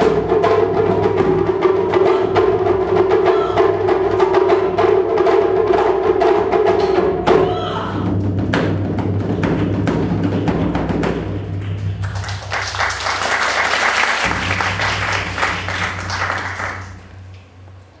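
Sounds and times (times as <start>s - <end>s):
taiko drum rolls: 0.0s - 17.7s
applause: 11.6s - 17.1s.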